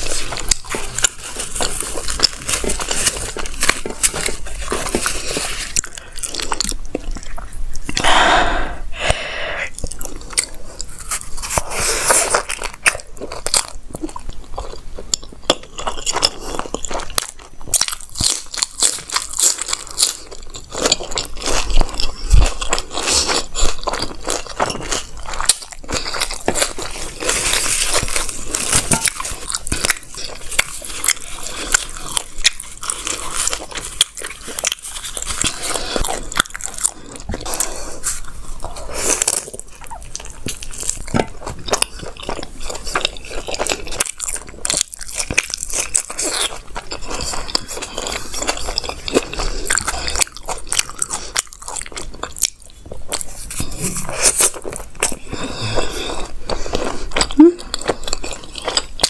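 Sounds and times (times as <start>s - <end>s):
close chewing and mouth clicks: 0.0s - 8.2s, 9.0s - 59.0s.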